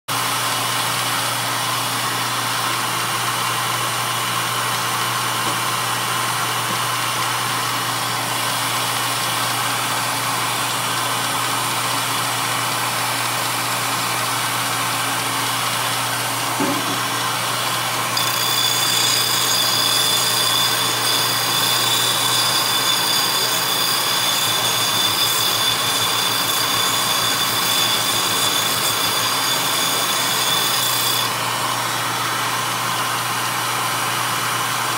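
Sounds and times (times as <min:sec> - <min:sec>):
wood sanding hiss with high whine: 0:17.4 - 0:31.8.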